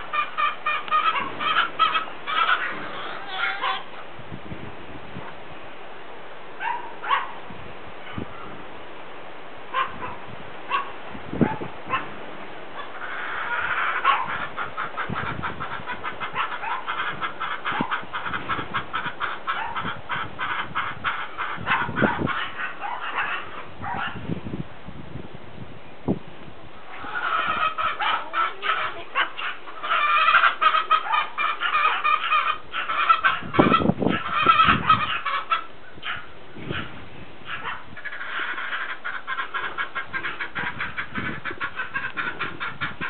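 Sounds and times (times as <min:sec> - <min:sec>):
short animal calls: 0:00.0 - 0:03.9.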